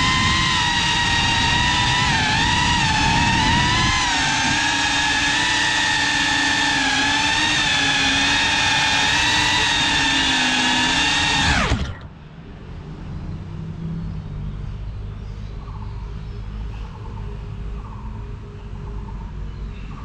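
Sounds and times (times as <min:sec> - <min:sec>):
drone motors whining: 0:00.0 - 0:12.2.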